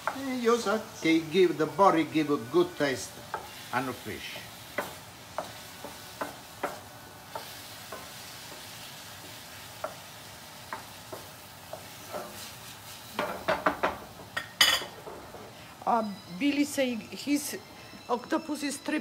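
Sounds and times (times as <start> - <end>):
seafood sizzling in butter: 0.0 - 17.2
wooden spoon knocking pan: 4.2 - 8.2, 13.2 - 15.4.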